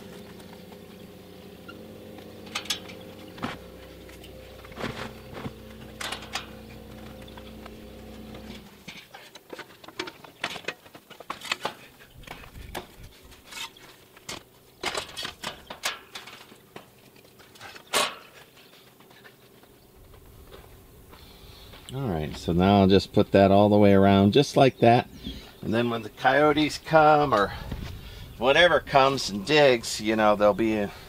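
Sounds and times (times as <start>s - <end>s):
hand truck wheeling: 0.0s - 21.8s
steady low hum: 0.0s - 31.0s.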